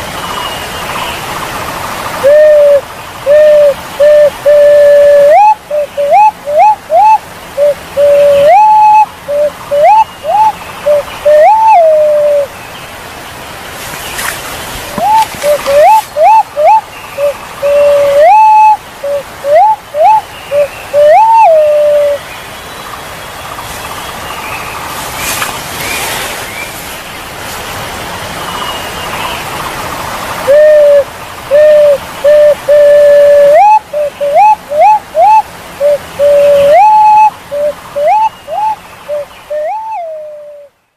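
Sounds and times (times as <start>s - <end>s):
steady hiss: 0.0s - 40.9s
pigeon whistling calls: 2.2s - 12.5s, 14.9s - 22.2s, 30.5s - 40.7s.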